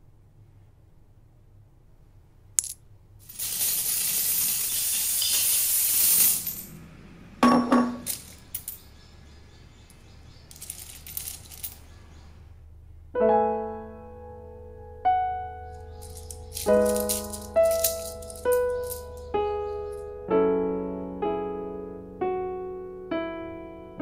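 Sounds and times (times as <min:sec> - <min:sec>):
coin dropping into plastic bank: 0:02.6 - 0:06.7, 0:07.4 - 0:08.8, 0:10.5 - 0:11.9, 0:15.9 - 0:19.3
coins sliding by hand: 0:02.6 - 0:06.7, 0:10.5 - 0:11.9, 0:16.0 - 0:19.3
coins rattling out: 0:02.6 - 0:06.8, 0:07.8 - 0:09.0, 0:10.3 - 0:12.0, 0:15.8 - 0:20.0
music with ringing chord: 0:13.2 - 0:24.0.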